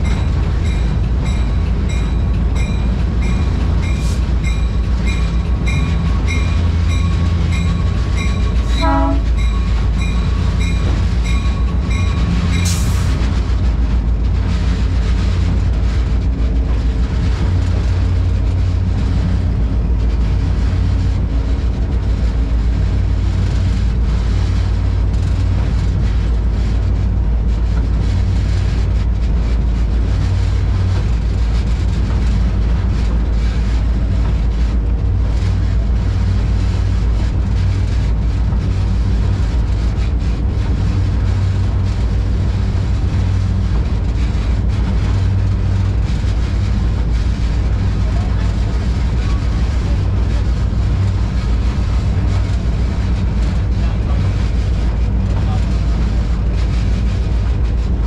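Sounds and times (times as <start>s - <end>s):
engine drone: 0.0s - 58.0s
train rumbling: 0.0s - 58.0s.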